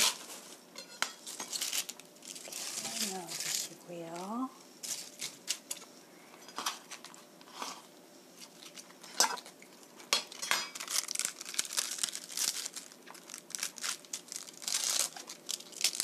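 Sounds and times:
cabbage leaves crackling: 1.2s - 5.8s, 10.3s - 16.0s.

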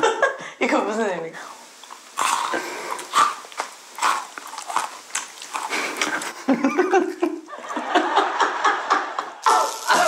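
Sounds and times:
chocolates crunching while chewed: 1.8s - 6.5s.

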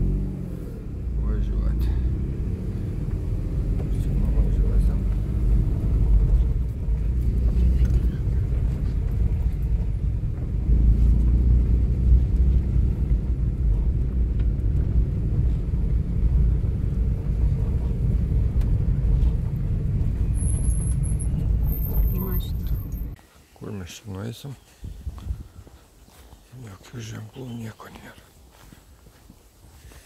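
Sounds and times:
car driving on road: 0.0s - 23.2s.

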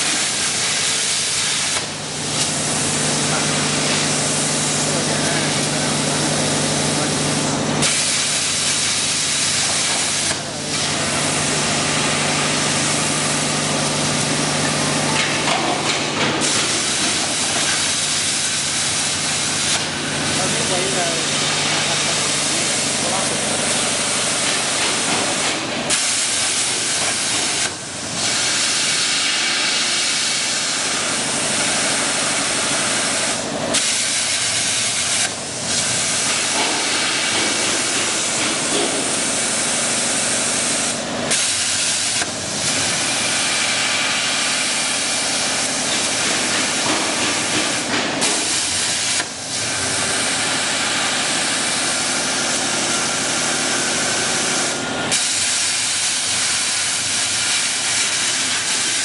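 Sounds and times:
plasma torch hissing: 0.0s - 6.3s, 7.0s - 14.3s, 15.1s - 59.0s.

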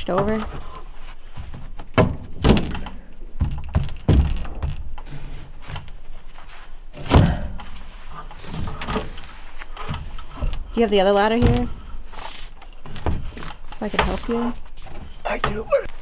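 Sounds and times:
ceiling panel thunking and knocking: 1.3s - 5.9s, 9.8s - 11.9s.

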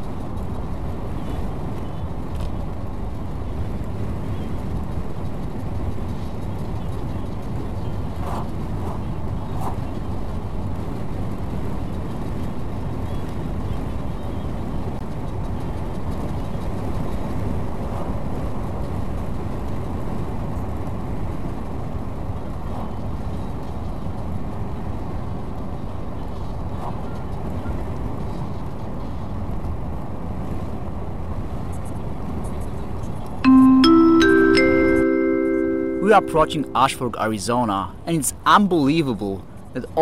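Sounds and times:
vehicle road noise inside cabin: 0.0s - 33.5s.

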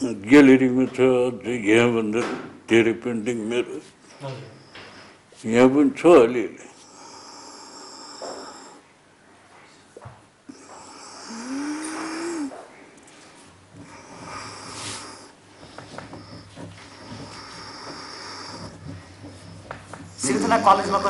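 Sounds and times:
man puffing on a pipe: 10.5s - 21.0s.

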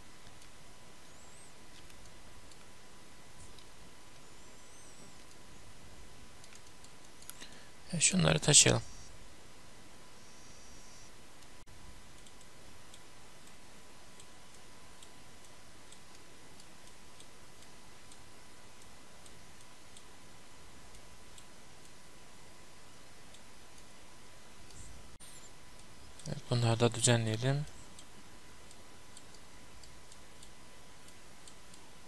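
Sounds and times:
low steady hiss: 0.0s - 32.0s
computer mouse clicks: 1.7s - 2.7s, 6.4s - 7.6s, 12.1s - 13.6s, 27.7s - 31.9s.

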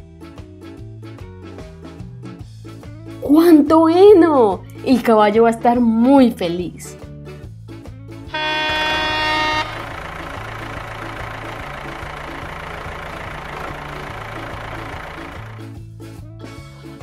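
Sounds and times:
background music with bass line: 0.0s - 17.0s
vehicle horn: 8.3s - 15.6s
tractor engine running: 8.3s - 15.8s.

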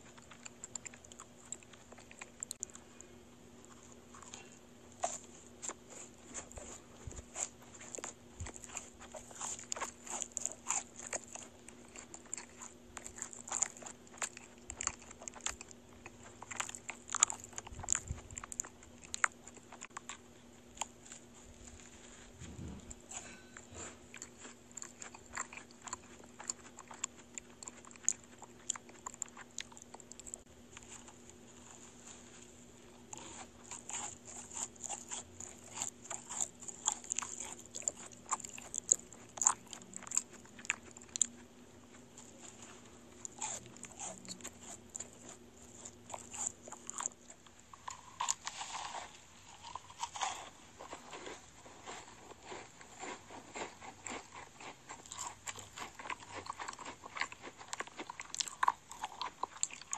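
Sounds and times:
chewing: 0.0s - 59.9s
crisp shells crunching: 43.2s - 59.9s.

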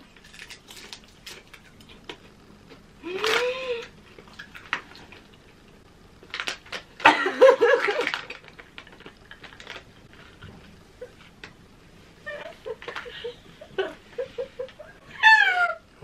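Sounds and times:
women laughing: 7.1s - 8.1s, 12.3s - 15.2s
crisp packet crackling: 7.8s - 10.3s.

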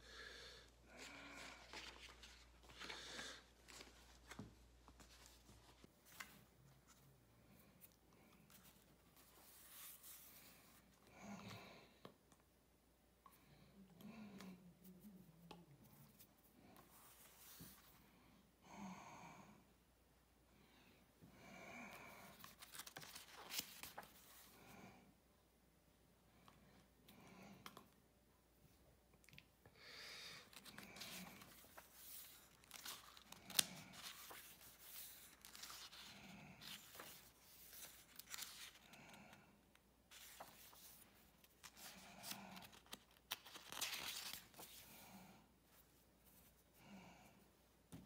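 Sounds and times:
book pages turning: 1.2s - 7.1s, 22.3s - 24.6s, 30.4s - 39.4s, 40.1s - 45.0s.

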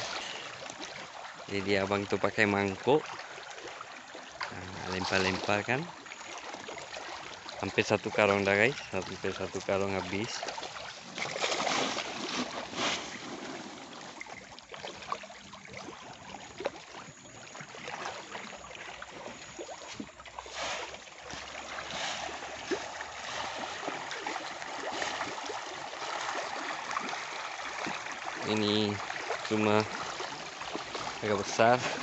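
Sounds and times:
sharp splashes: 2.8s - 32.0s
fish thrashing at water surface: 10.4s - 16.8s.

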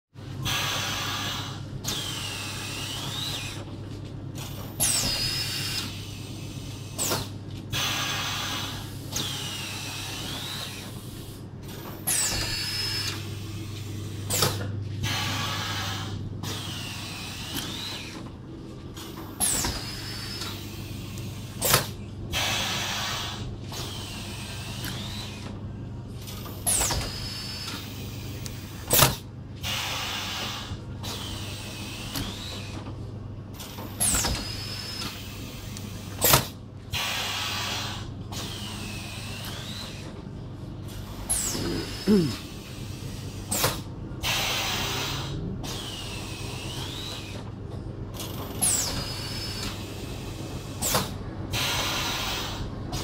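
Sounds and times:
machine hum: 37.2s - 44.2s.

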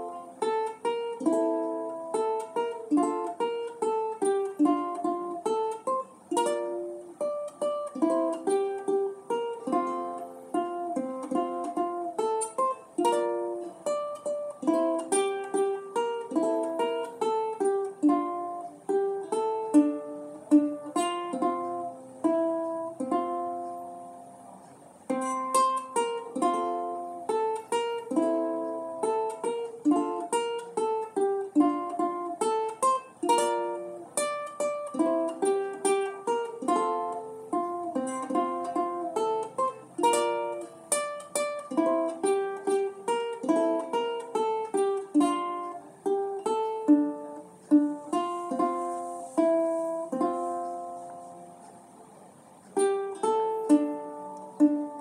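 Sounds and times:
ukulele melody with chords: 0.0s - 55.0s.

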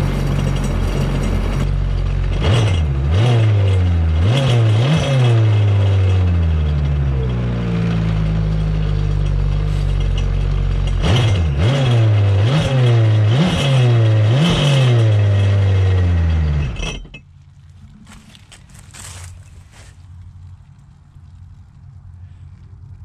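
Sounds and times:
jet ski engine revving and idling: 2.3s - 10.1s, 10.9s - 16.5s.

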